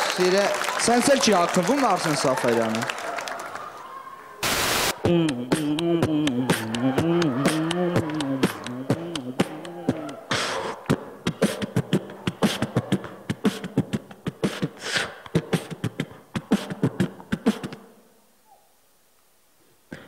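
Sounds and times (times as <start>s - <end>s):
man beatboxing into microphone: 4.9s - 17.9s.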